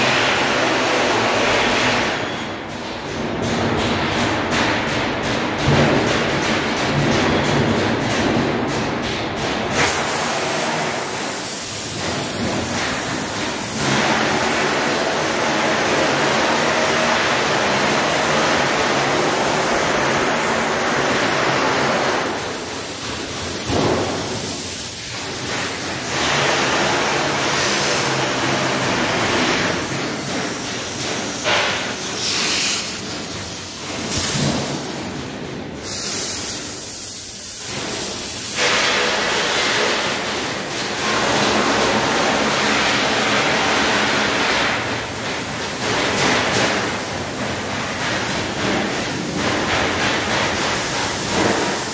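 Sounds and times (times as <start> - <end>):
laser cutter hissing: 9.8 - 35.2, 35.8 - 44.8.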